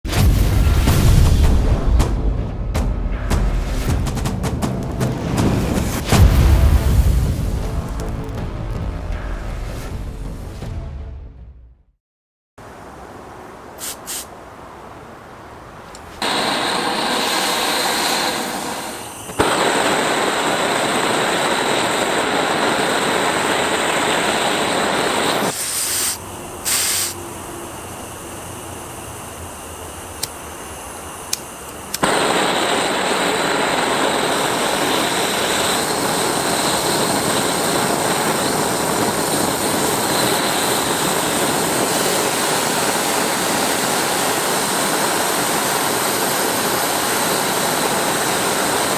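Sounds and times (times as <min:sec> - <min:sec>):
aerosol spray hissing: 0:13.8 - 0:14.3, 0:16.2 - 0:20.3, 0:22.5 - 0:27.4.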